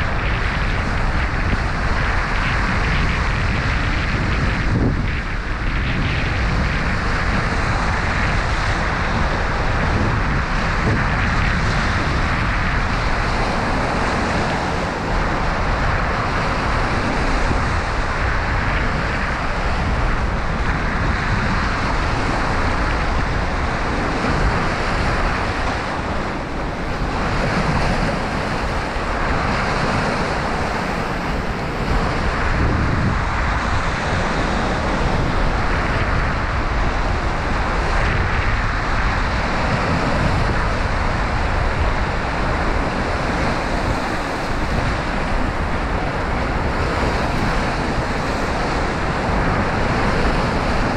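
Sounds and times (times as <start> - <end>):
waves breaking on rocky shore: 0.0 - 50.9.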